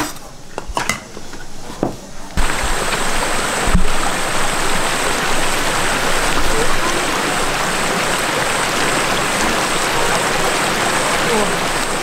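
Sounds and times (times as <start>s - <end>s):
dishes clinking: 0.0s - 2.0s
water rushing: 2.4s - 12.0s.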